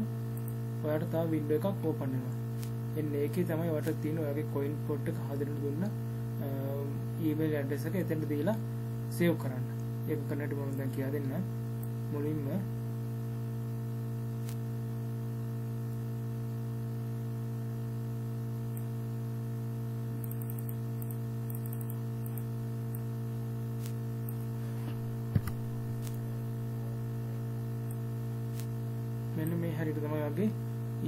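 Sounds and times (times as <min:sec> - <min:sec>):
electrical mains hum: 0:00.0 - 0:31.0
clicks: 0:23.8 - 0:26.2.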